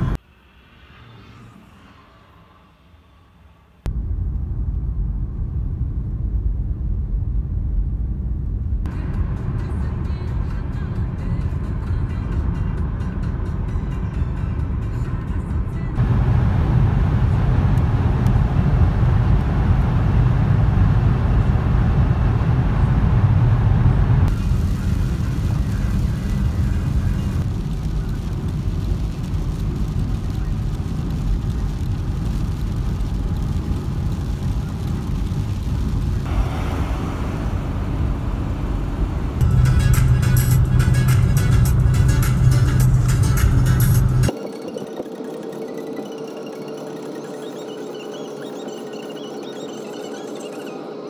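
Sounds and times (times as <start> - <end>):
car cabin rumble: 16.0 - 28.2, 32.7 - 44.3.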